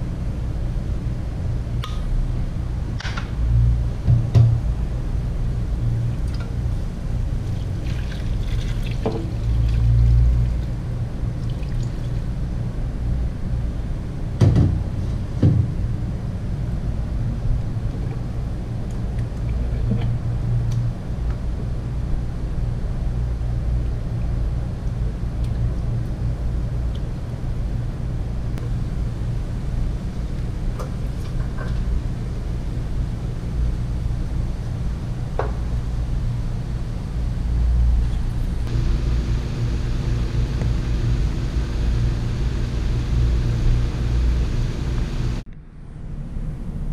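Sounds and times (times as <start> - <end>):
steady low hum: 0.0 - 46.9
water pouring into a pot: 7.7 - 10.5.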